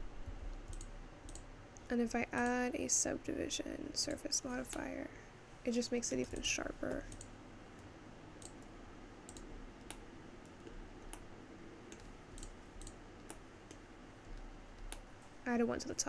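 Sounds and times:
low steady hiss: 0:00.0 - 0:16.0
computer mouse clicks: 0:00.5 - 0:02.6, 0:06.3 - 0:08.7, 0:09.3 - 0:11.3, 0:11.9 - 0:15.1.

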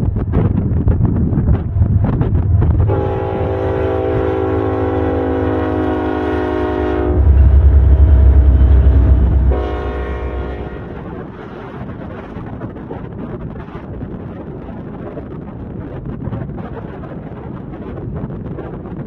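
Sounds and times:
diesel locomotive engines rumbling: 0:00.0 - 0:19.0
locomotive air horn: 0:02.8 - 0:11.2.

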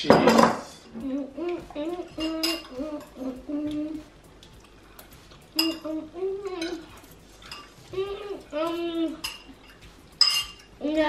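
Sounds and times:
forks clinking on plates: 0:01.9 - 0:03.8, 0:05.0 - 0:10.8.

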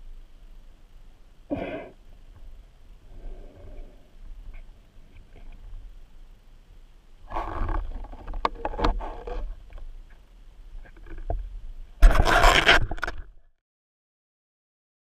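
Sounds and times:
underwater clicks and knocks: 0:07.6 - 0:10.2, 0:10.8 - 0:13.3.

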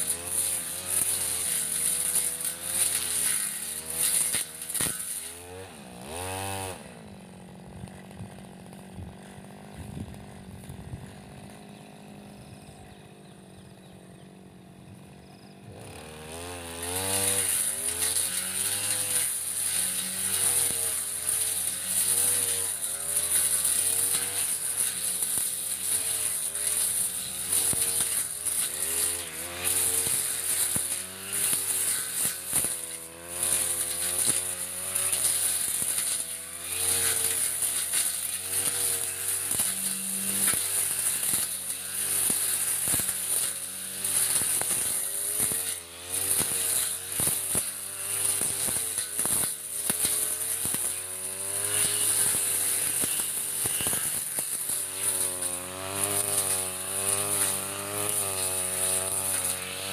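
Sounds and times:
brush cutter engine running: 0:00.0 - 0:59.9.

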